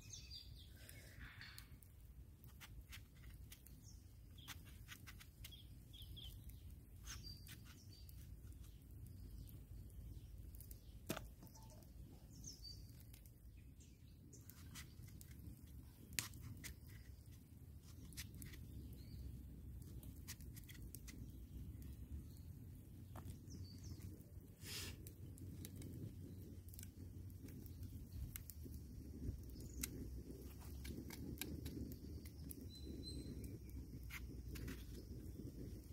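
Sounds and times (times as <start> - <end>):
faint bird chirps: 0.0 - 1.9, 5.4 - 14.9, 31.8 - 35.9.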